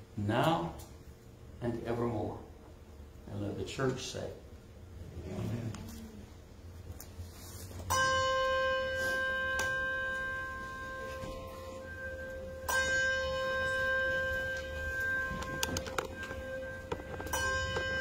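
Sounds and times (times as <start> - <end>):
chime notes ringing: 7.9 - 18.0.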